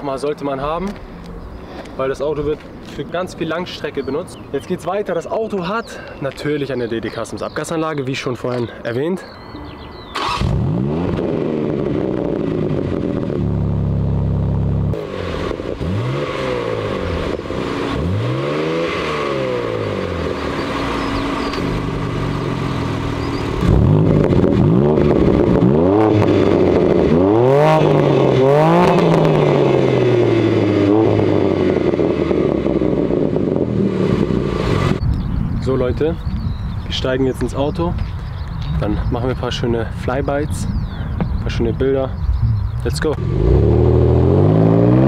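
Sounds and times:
car engine revving: 9.8 - 35.1, 42.3 - 45.0.

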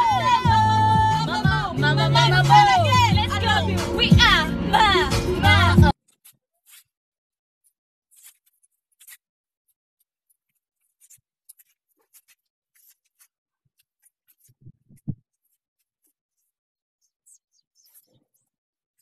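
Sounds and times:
faint scratches and ticks: 6.0 - 6.9, 7.6 - 19.0.

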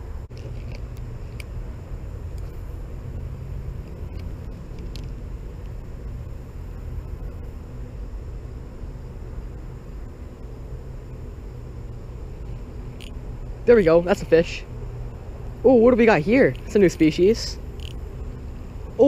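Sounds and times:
steady low rumble: 0.0 - 19.0
fishing reel clicks: 17.8 - 18.0.

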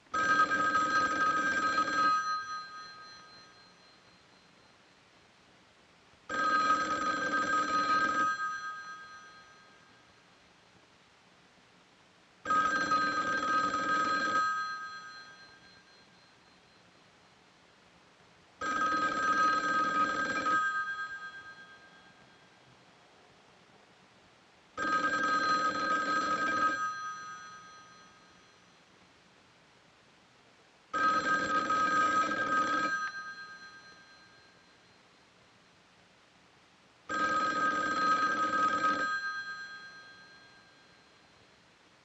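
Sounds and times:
telephone bell ringing: 0.1 - 4.8, 6.3 - 10.3, 12.5 - 17.1, 18.6 - 22.7, 24.8 - 28.9, 30.9 - 35.2, 37.1 - 41.6.

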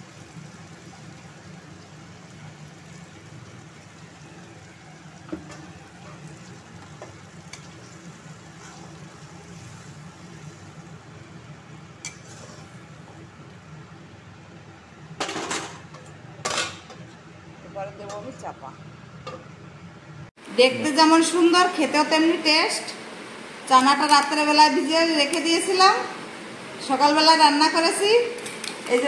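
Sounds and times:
water pouring: 0.0 - 11.0
curry simmering: 0.0 - 15.2.

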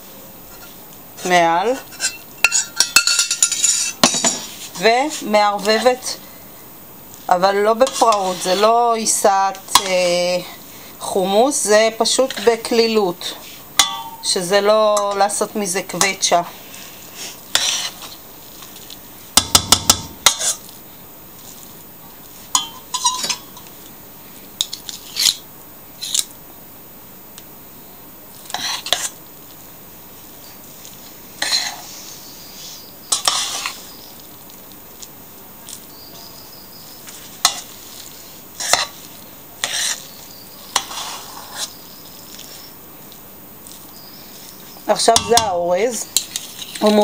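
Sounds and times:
metal spoon scraping a pot: 1.8 - 4.5, 7.8 - 8.8, 17.5 - 18.1, 20.3 - 20.6, 22.6 - 23.7, 31.4 - 31.8, 33.1 - 33.8, 38.6 - 39.0, 39.6 - 40.0, 40.7 - 41.8, 46.2 - 47.0.

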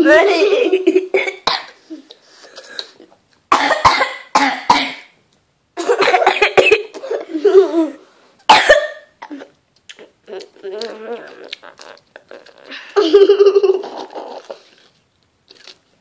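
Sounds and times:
girl coughing: 1.2 - 1.8, 3.5 - 5.1, 5.9 - 7.2, 8.5 - 9.5.

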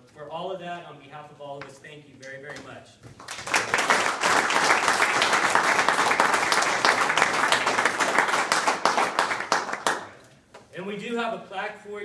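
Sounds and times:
people applauding: 3.2 - 10.2.

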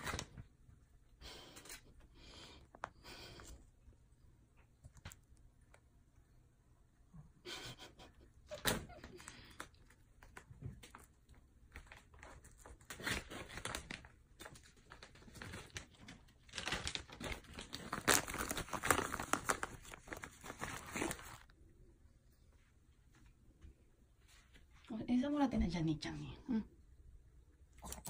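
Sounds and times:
snack packet crinkling: 9.3 - 21.5.

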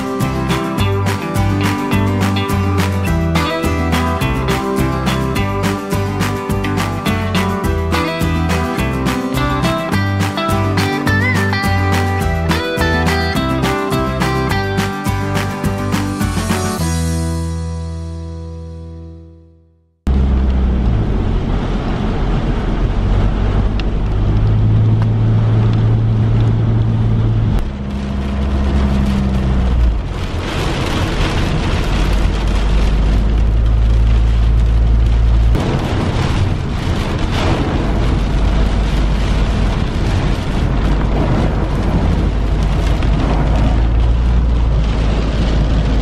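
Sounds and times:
rain on car: 0.0 - 16.9, 20.1 - 46.0
car engine and road drone: 0.0 - 19.0, 20.0 - 46.0
tyres hissing on wet road: 28.0 - 46.0.

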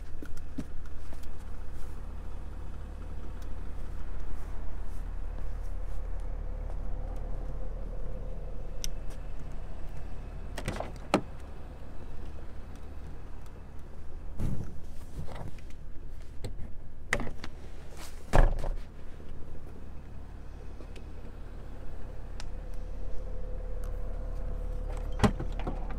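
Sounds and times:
steady low rumble: 0.0 - 25.9.

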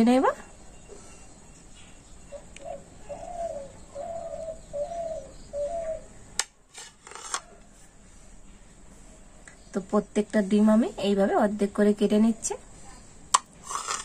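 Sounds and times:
dove cooing: 2.3 - 6.1.

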